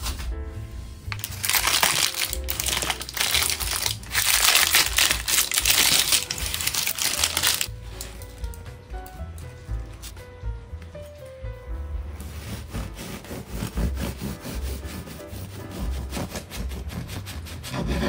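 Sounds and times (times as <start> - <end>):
background music: 0.0 - 18.0
baking paper crinkling: 1.1 - 10.2.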